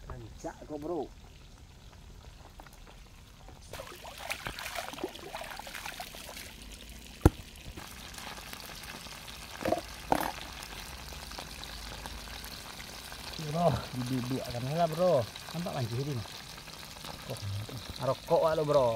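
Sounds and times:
fish sizzling in hot oil: 0.7s - 18.9s
water splashing in a stream: 3.8s - 7.7s.

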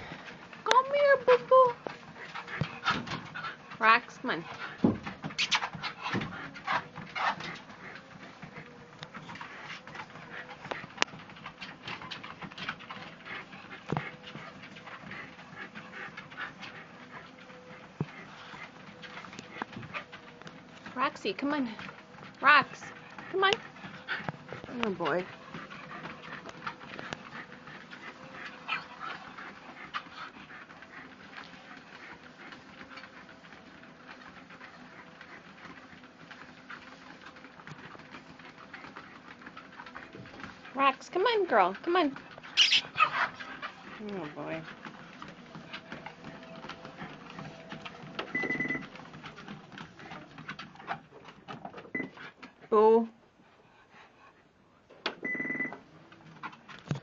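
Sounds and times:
dog panting: 0.0s - 57.0s
paws pattering on treadmill belt: 0.0s - 57.0s
treadmill hum: 0.0s - 57.0s.

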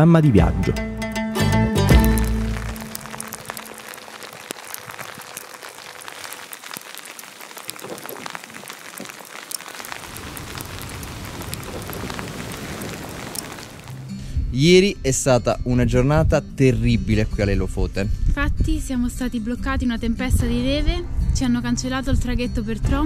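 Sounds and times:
rain pattering: 1.8s - 14.1s.

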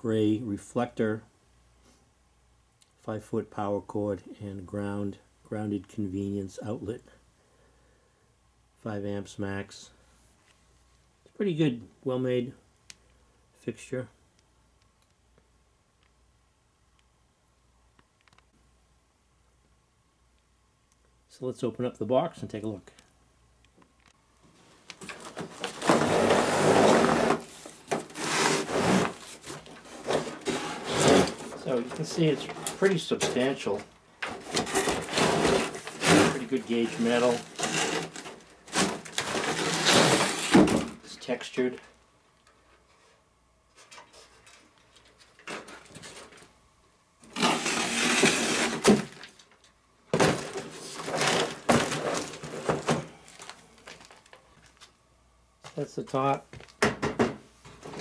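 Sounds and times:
cardboard scraping and rubbing: 25.0s - 33.8s, 34.4s - 40.9s, 47.3s - 49.2s, 50.2s - 53.5s.

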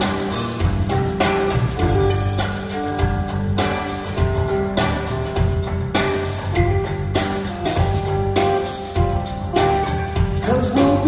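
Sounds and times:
live band playing: 0.0s - 11.0s
person singing: 10.4s - 11.0s.

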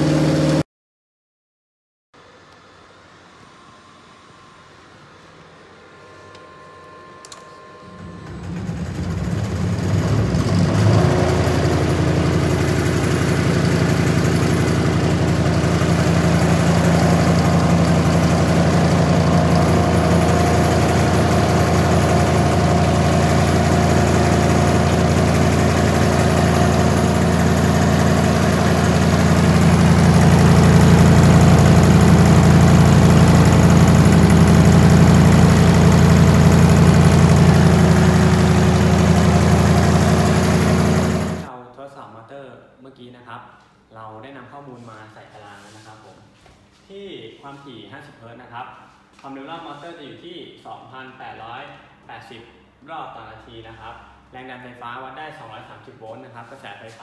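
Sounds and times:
electric motor humming: 6.1s - 41.5s.

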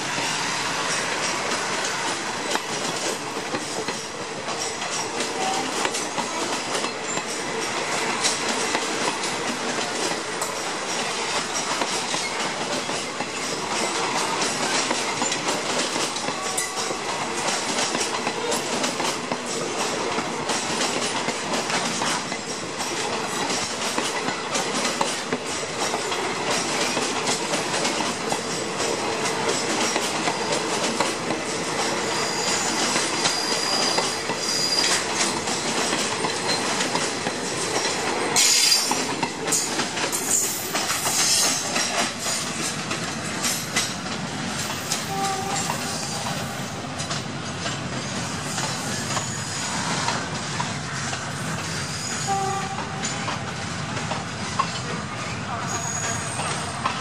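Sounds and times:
train coach clatter: 0.0s - 57.0s
train wheels rumbling on rails: 0.0s - 57.0s
wheels clickety-clack over rail joints: 0.0s - 57.0s
high wheel squeal: 31.9s - 35.2s, 38.4s - 39.0s, 40.2s - 42.5s, 44.6s - 46.9s, 48.2s - 50.0s, 51.3s - 52.6s, 55.6s - 57.0s.

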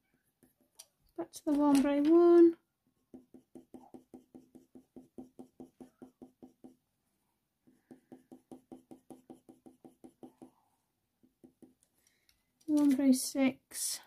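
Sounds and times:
pencil tapping on paper: 3.1s - 6.8s, 7.7s - 10.6s, 11.2s - 11.9s.

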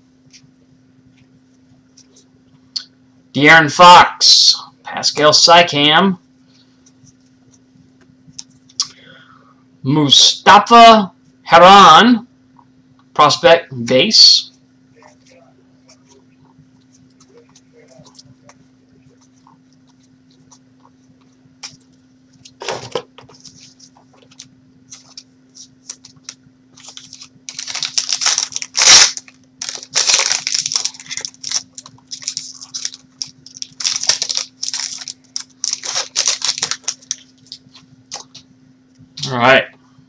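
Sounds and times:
steady low hum: 0.0s - 40.0s
plastic wrapper tearing and crinkling: 23.4s - 38.4s.

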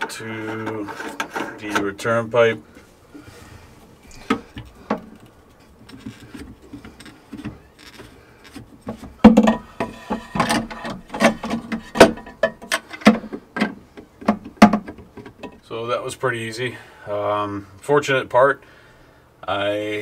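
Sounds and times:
plastic clicks and knocks: 4.1s - 15.6s.

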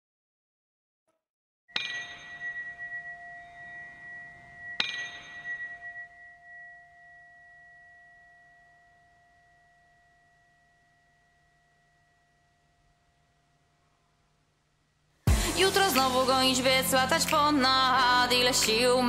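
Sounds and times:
bell-like chimes ringing: 1.7s - 13.4s.

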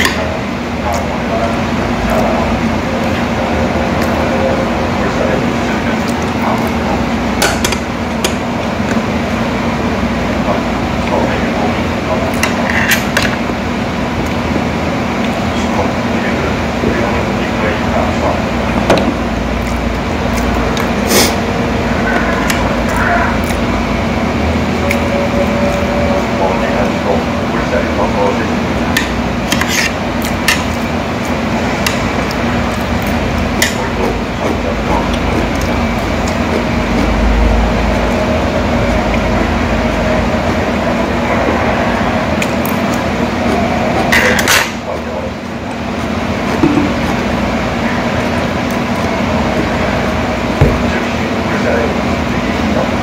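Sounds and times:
indistinct voices: 0.0s - 53.0s
low hum: 0.0s - 53.0s.

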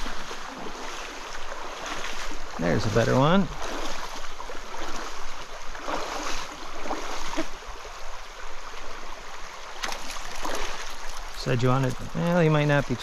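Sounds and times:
stream water running and splashing: 0.0s - 13.0s
short splashy clicks: 9.8s - 11.3s.

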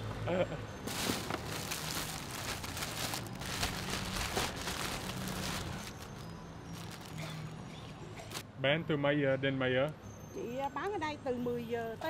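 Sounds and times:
plastic bag crinkling: 0.9s - 7.4s.

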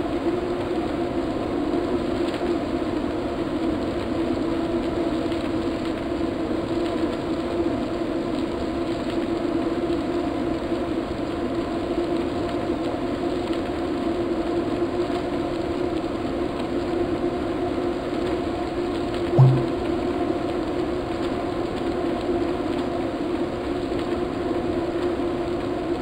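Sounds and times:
low thump: 19.4s - 19.9s.

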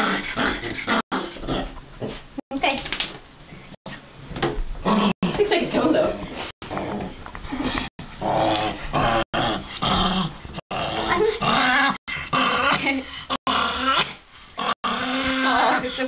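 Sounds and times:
small dog growling: 6.6s - 16.0s.

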